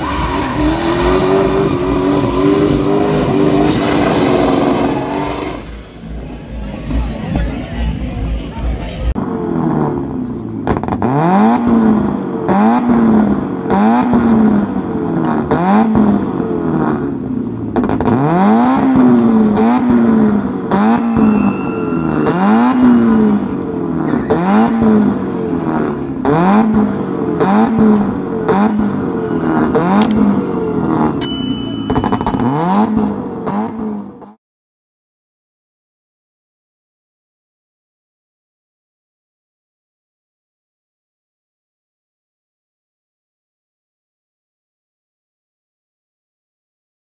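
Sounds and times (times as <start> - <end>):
car engine revving: 0.0 - 7.3, 9.0 - 31.2, 32.0 - 34.4.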